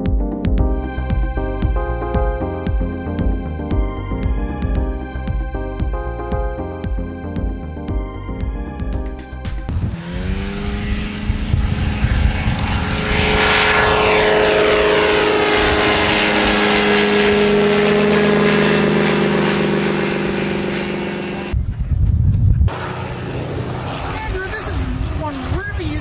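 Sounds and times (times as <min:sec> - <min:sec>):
low rumble and thumps: 0:00.1 - 0:18.0
ultralight aircraft engine buzzing: 0:00.7 - 0:07.5, 0:08.3 - 0:21.9, 0:22.5 - 0:26.0.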